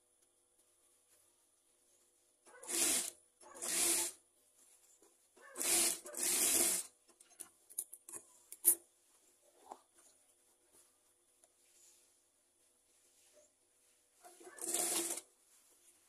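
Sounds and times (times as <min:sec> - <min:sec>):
sewing machine stitching: 0:02.5 - 0:04.2, 0:05.4 - 0:06.9, 0:14.4 - 0:15.3.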